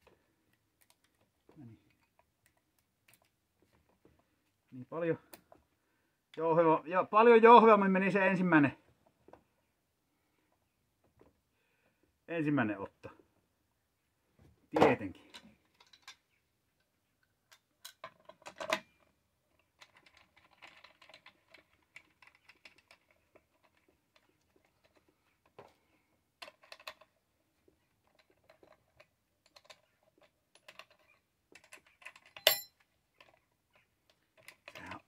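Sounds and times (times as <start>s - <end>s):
metal parts clicking and rattling: 15.2s - 16.3s, 17.5s - 25.7s, 26.4s - 27.2s, 28.0s - 35.0s
sharp metallic clink: 32.4s - 32.8s.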